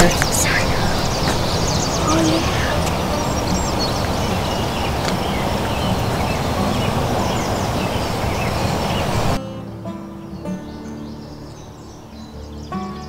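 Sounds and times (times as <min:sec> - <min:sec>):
wind on microphone: 0:00.0 - 0:09.4
small birds chirping: 0:00.0 - 0:13.0.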